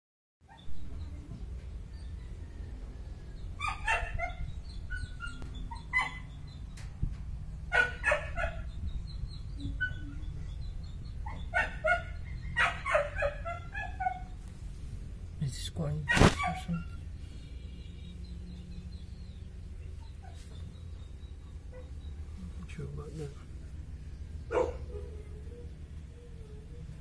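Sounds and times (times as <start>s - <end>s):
animal calls: 24.4s - 27.0s.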